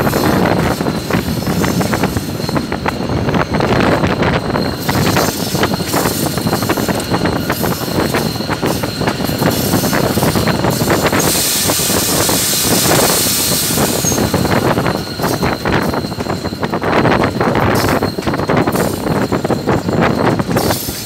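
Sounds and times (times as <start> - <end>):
diesel locomotive rumble: 0.0 - 21.0
wind buffeting microphone: 0.0 - 21.0
hissing rush: 3.8 - 15.8.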